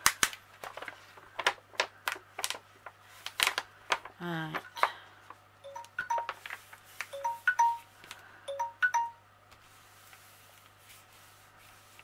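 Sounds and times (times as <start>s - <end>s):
paper rustling: 0.0s - 4.2s
electronic chime melody: 5.7s - 6.4s, 7.2s - 7.9s, 8.5s - 9.2s.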